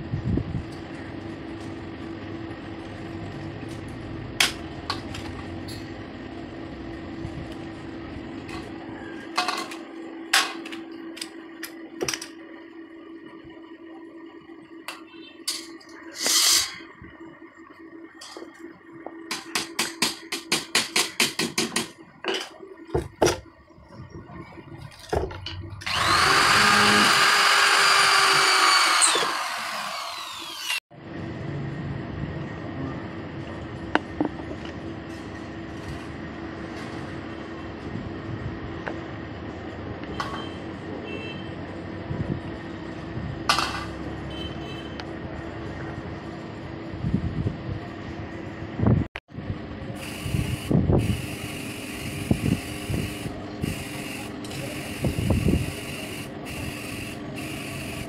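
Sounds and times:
power drill running: 25.8s - 30.8s, 50.0s - 58.0s.

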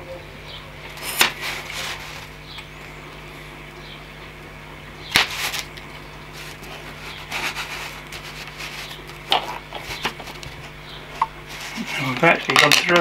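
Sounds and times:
knife scraping foam board: 6.4s - 9.0s.

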